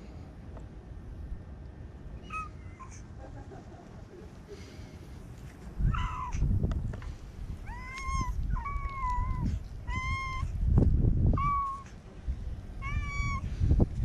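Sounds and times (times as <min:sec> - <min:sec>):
kitten meowing: 0:05.8 - 0:06.4, 0:07.7 - 0:10.6, 0:11.4 - 0:11.9, 0:12.8 - 0:13.5.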